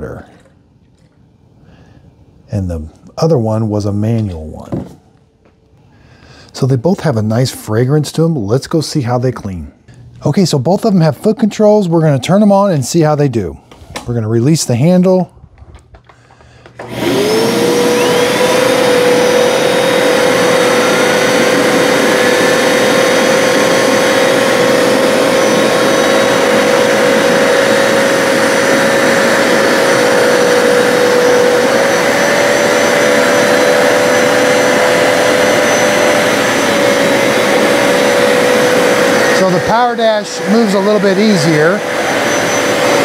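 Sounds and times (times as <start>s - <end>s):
carpet cleaner motors whining: 16.6s - 43.0s.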